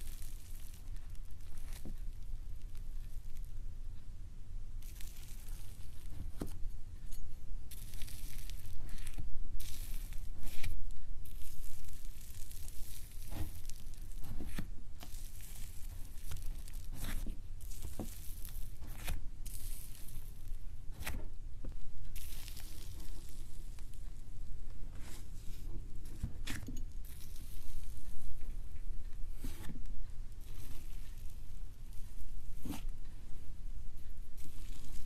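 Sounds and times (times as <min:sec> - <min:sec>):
slime crackling and tearing: 0:00.0 - 0:03.5, 0:04.8 - 0:06.4, 0:07.7 - 0:21.2, 0:22.2 - 0:24.0, 0:34.4 - 0:35.0.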